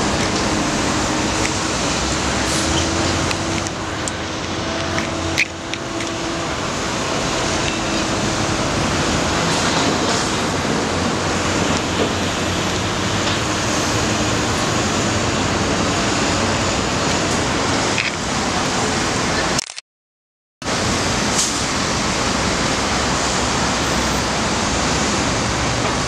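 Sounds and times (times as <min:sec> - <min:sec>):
trucks idling: 0:00.0 - 0:19.5
street traffic din: 0:00.0 - 0:19.8, 0:20.6 - 0:26.0.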